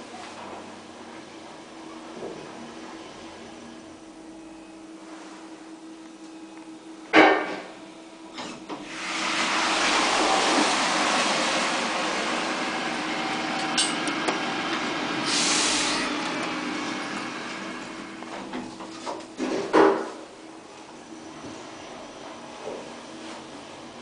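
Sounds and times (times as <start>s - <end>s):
elevator doors sliding open: 8.3s - 19.7s
brief hiss: 15.3s - 16.1s.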